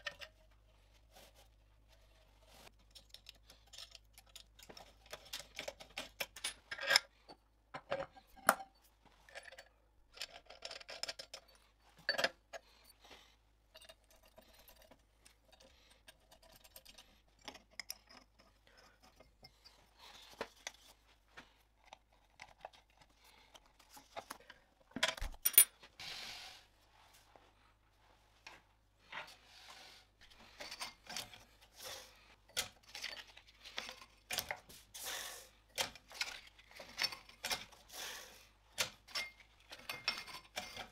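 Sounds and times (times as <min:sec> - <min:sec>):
metal parts clicking and clacking: 0:02.7 - 0:07.1, 0:07.7 - 0:13.0, 0:13.7 - 0:19.8, 0:21.8 - 0:25.7, 0:30.5 - 0:31.7, 0:32.5 - 0:34.6, 0:35.7 - 0:37.8, 0:38.7 - 0:40.9.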